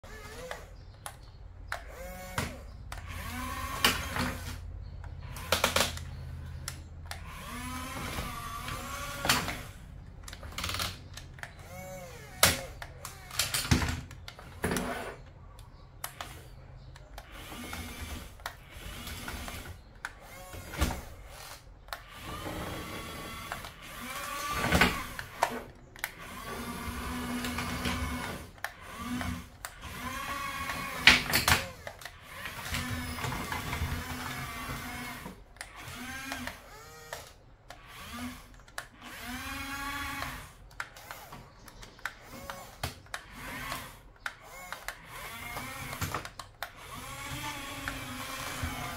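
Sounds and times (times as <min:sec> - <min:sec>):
small electric motors whining: 0:00.0 - 0:48.9.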